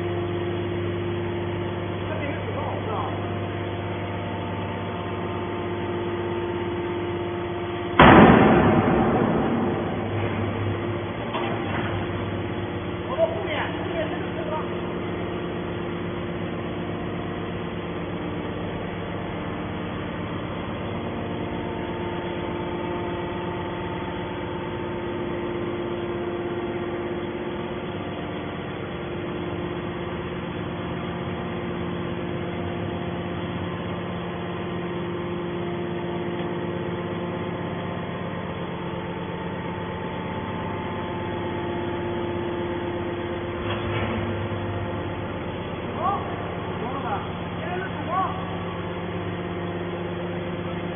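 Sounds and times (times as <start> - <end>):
hydraulic pump motor humming: 0.0 - 50.9.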